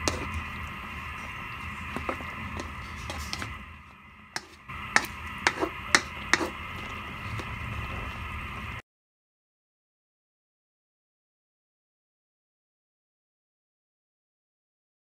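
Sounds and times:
pot simmering with hiss: 0.0s - 8.8s.

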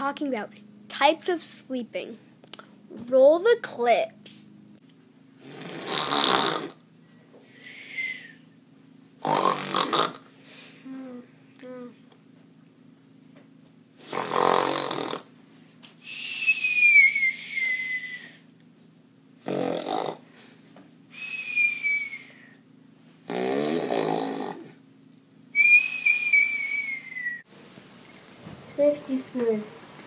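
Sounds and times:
cartoon mock snoring: 5.4s - 6.8s, 9.2s - 10.3s, 14.0s - 15.3s, 19.4s - 20.2s, 23.3s - 24.8s.

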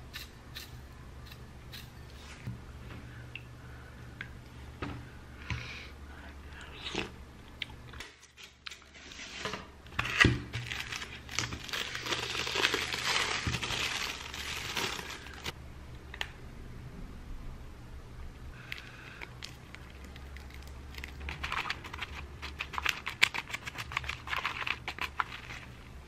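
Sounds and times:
plastic packaging crinkling and tearing: 10.0s - 15.6s, 19.4s - 25.7s.

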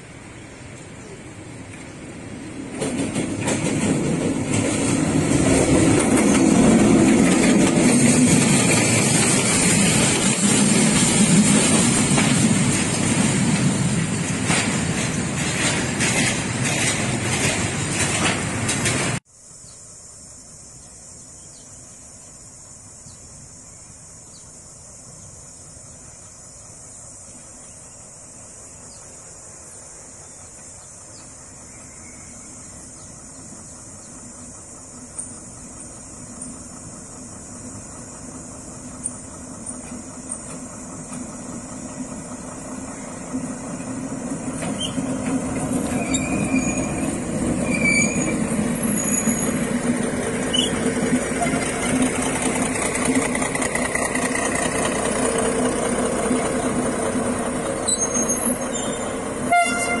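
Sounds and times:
locomotive engine hum: 0.0s - 19.2s, 20.5s - 60.0s
metallic squeals: 45.8s - 49.7s, 50.5s - 52.1s, 57.8s - 60.0s.

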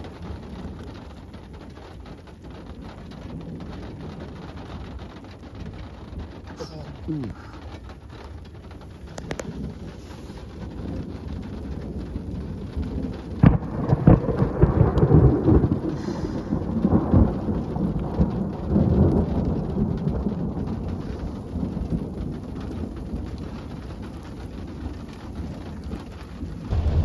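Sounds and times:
rain falling: 0.0s - 27.0s
thunder crack and rumble: 0.0s - 27.0s.

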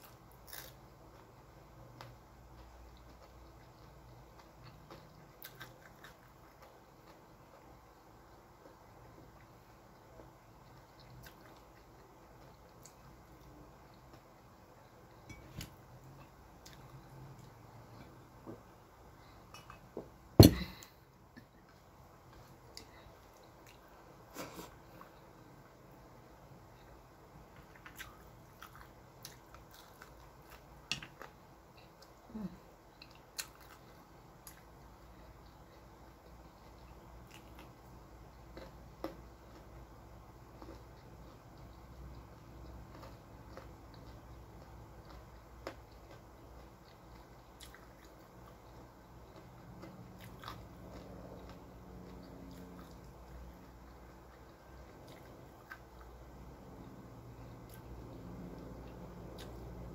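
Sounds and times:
person chewing food: 0.0s - 25.8s, 26.7s - 59.9s.

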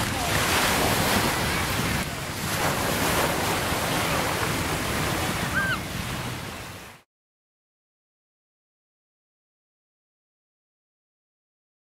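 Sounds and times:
wind buffeting microphone: 0.0s - 6.9s
surf washing in: 0.0s - 7.0s.

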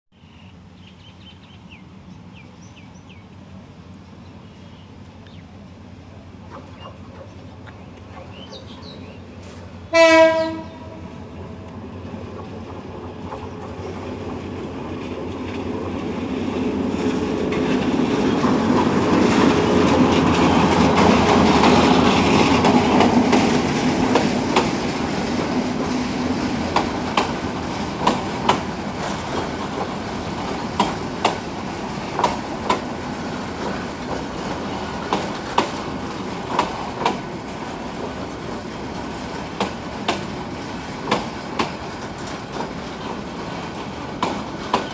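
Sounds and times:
diesel locomotive engine rumble: 0.3s - 44.9s
wheels clacking over rail joints: 6.4s - 44.9s.

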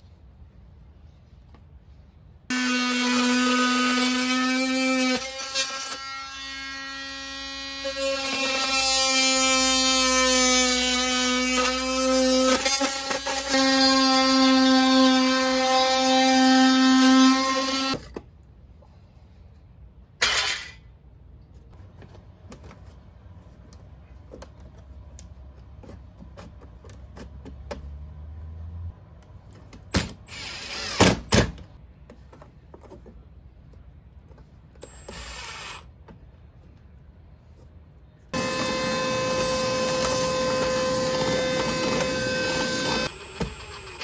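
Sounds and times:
cordless drill whining: 34.8s - 35.9s, 38.4s - 44.0s.

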